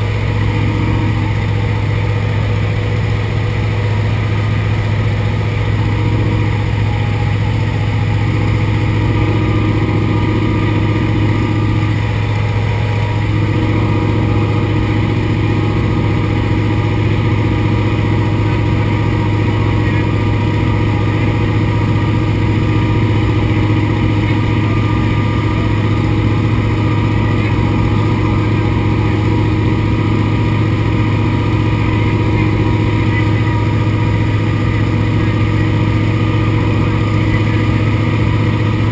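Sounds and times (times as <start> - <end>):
propeller engine droning: 0.0 - 38.9.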